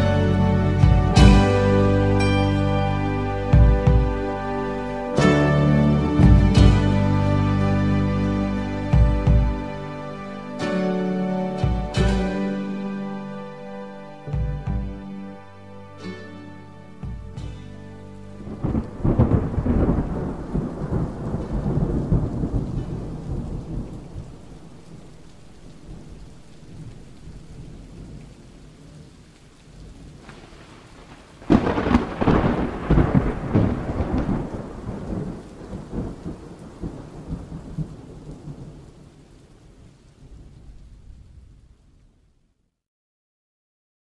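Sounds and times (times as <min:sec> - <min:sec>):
steady rain: 0:00.0 - 0:42.8
thunder rolling: 0:18.4 - 0:29.1, 0:29.9 - 0:41.8.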